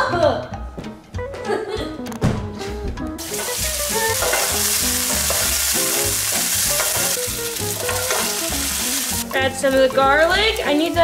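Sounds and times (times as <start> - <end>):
food sizzling in frying pan: 3.2 - 11.0.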